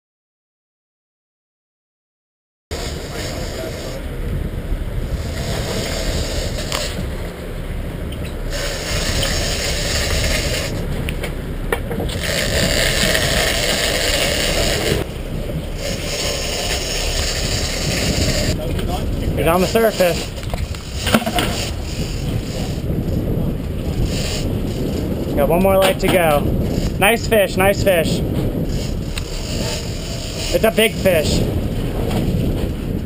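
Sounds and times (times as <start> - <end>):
boat and wind rumble: 2.7 - 33.0
fishing reel gears whirring: 8.5 - 10.8, 12.1 - 15.0.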